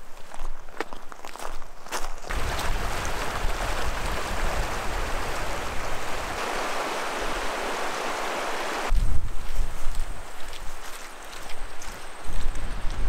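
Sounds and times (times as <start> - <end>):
river rushing over stones: 2.3 - 8.9.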